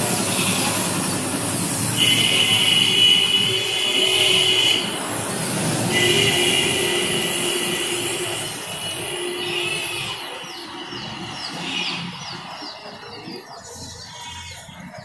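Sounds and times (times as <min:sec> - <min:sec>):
spray gun hissing with whistle: 0:00.0 - 0:10.8.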